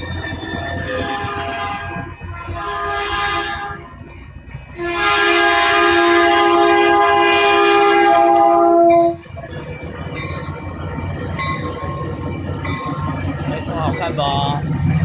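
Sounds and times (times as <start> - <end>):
locomotive horn blasts: 0.7 - 3.9, 4.7 - 9.2.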